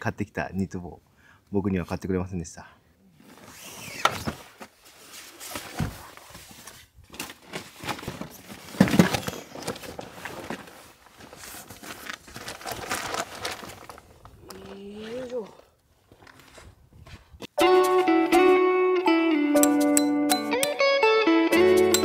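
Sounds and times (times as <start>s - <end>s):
fabric bag rustling and scraping: 3.2s - 14.0s.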